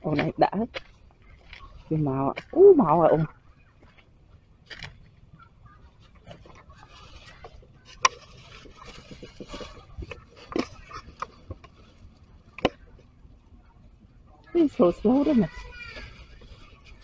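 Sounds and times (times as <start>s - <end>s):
plastic bag rustling: 3.2s - 13.0s, 14.6s - 17.0s.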